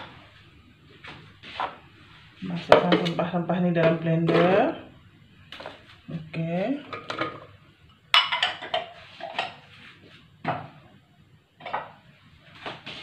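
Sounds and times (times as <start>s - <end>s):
containers knocking and clattering: 3.8s - 4.8s.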